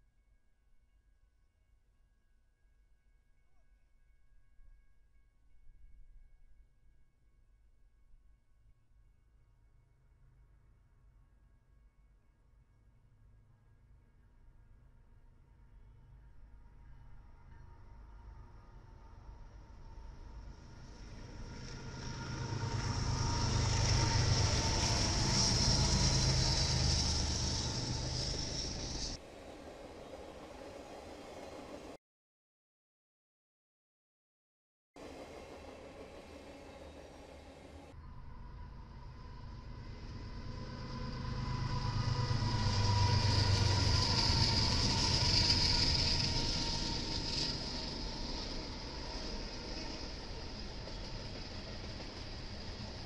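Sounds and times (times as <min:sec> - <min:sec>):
diesel locomotive engines: 0:16.2 - 0:32.0, 0:35.0 - 0:53.0
high hiss: 0:22.1 - 0:32.0.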